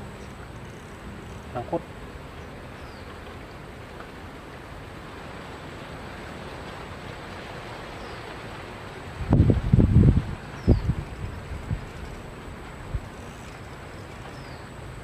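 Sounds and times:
river ambience: 0.0 - 15.0
wind hiss: 0.0 - 15.0.

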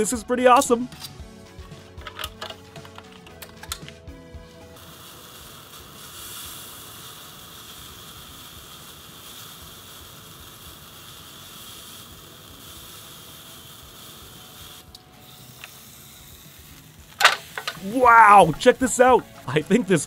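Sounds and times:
sausage sizzling on grill: 4.1 - 20.0.

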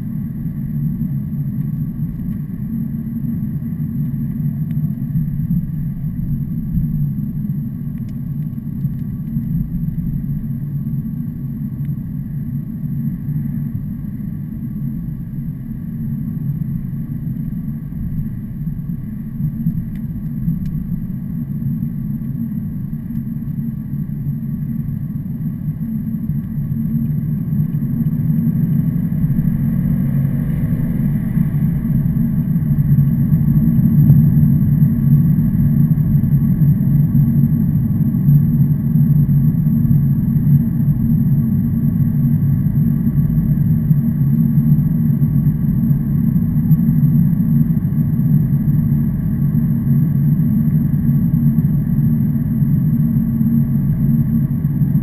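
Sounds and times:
heavy truck engine droning: 27.6 - 36.6.

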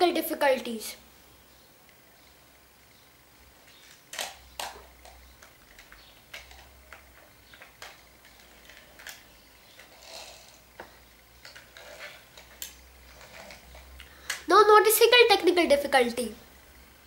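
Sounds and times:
faint irregular clicks: 3.6 - 14.5
objects being handled rustling: 3.6 - 14.5.

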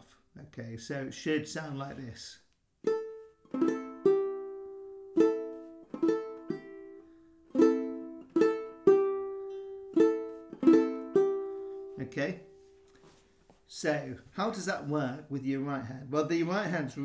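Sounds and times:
banjo ukulele played clawhammer style: 2.8 - 13.2.

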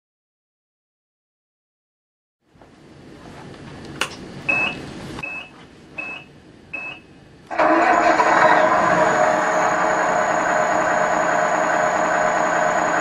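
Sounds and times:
short electronic beeps: 4.5 - 7.1
diesel truck engine sound: 6.8 - 13.0.

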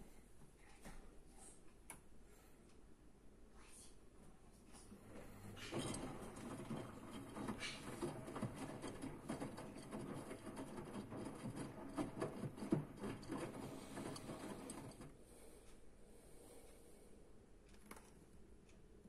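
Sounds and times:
washing machine drum turning: 5.5 - 15.1.

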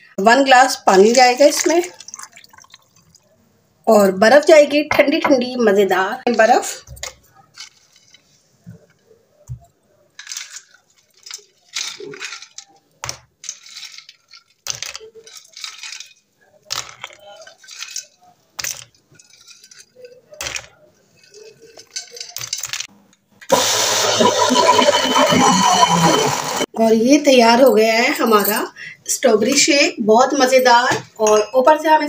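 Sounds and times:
blender motor running: 23.5 - 26.7.

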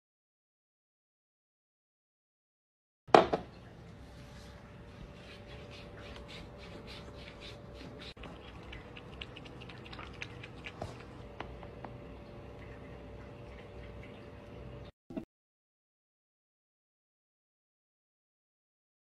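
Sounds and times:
faint steady hum: 3.3 - 15.0
cat lapping water: 4.5 - 14.9.

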